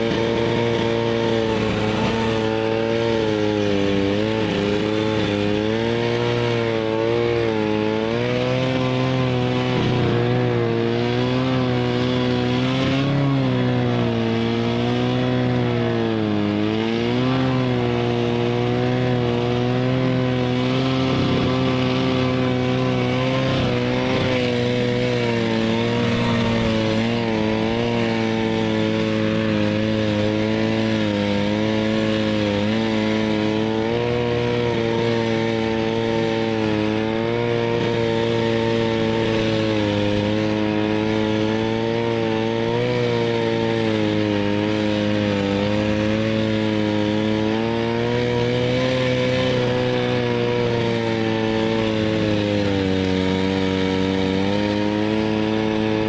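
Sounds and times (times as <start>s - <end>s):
snowmobile engine running: 0.0s - 56.0s.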